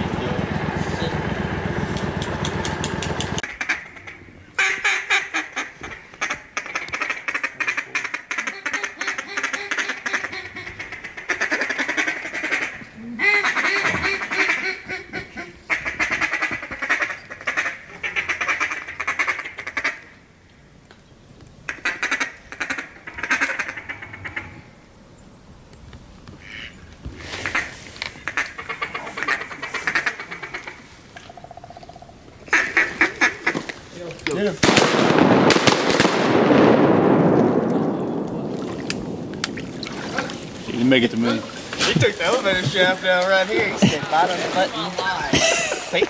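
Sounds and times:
outboard motor running: 0:00.0 - 0:03.4
duck quacking and chattering: 0:03.4 - 0:20.0, 0:27.4 - 0:30.9.

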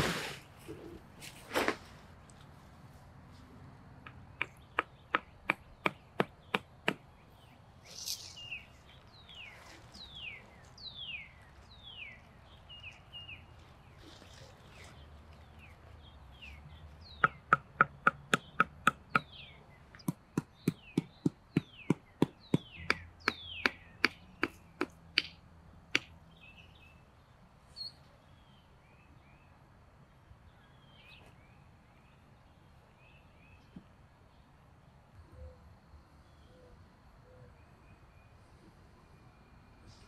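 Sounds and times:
faint birds chirping: 0:00.0 - 0:40.0
stick knocking wooden stakes: 0:04.0 - 0:07.0, 0:17.1 - 0:19.3, 0:20.0 - 0:26.1.

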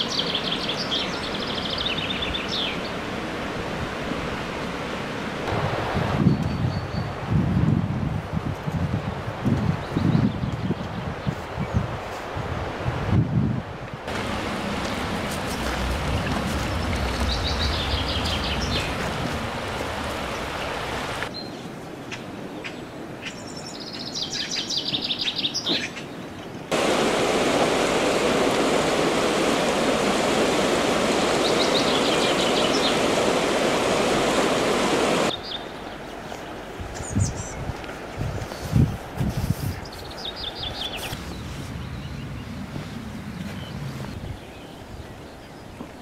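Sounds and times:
steady rushing noise: 0:03.1 - 0:06.5, 0:14.0 - 0:21.3, 0:26.7 - 0:35.4, 0:41.1 - 0:44.7
songbirds trilling: 0:14.2 - 0:26.8, 0:30.6 - 0:37.7.

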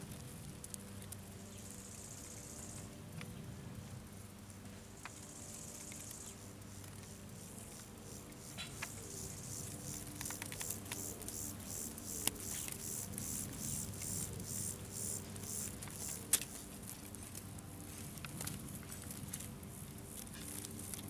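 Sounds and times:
insects chirping: 0:01.3 - 0:03.0, 0:04.2 - 0:17.0.

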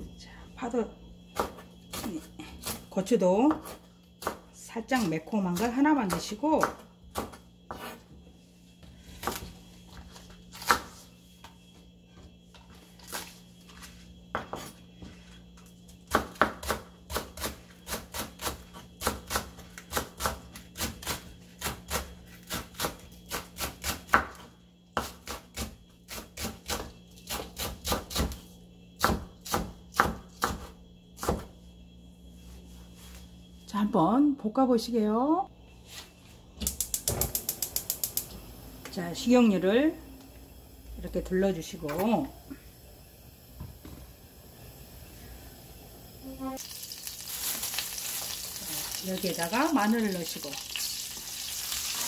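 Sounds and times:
knife chopping on wooden board: 0:06.1 - 0:08.0, 0:29.0 - 0:31.5.

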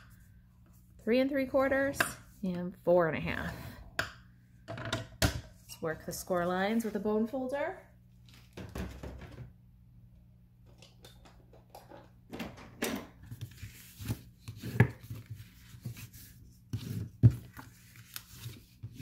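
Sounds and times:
cardstock rustling and scraping: 0:13.3 - 0:19.0.

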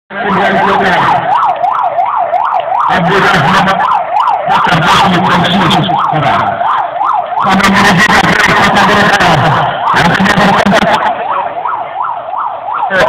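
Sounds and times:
electronic siren yelping: 0:00.1 - 0:13.0.

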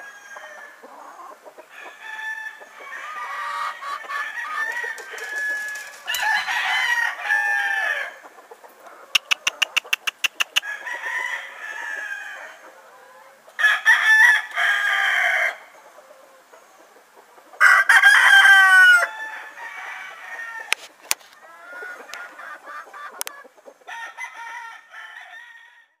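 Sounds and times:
roosters crowing: 0:00.0 - 0:15.8, 0:17.6 - 0:26.0
hens clucking: 0:00.4 - 0:13.6, 0:14.3 - 0:24.6
sharp clicks: 0:09.2 - 0:10.6.

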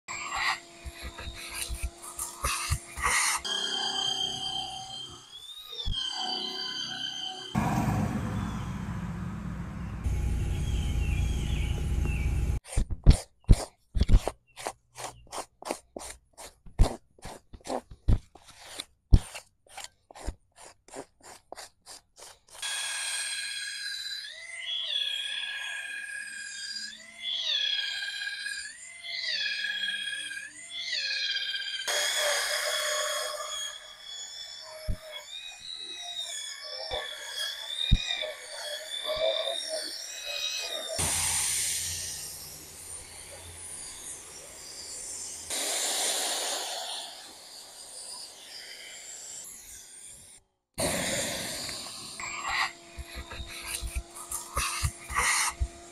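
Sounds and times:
drill scrub brush whirring: 0:00.1 - 0:06.4, 0:13.6 - 0:25.8, 0:36.6 - 0:55.9
hand tool scraping carpet mat: 0:00.2 - 0:03.5, 0:12.6 - 0:22.7, 0:51.4 - 0:55.9.

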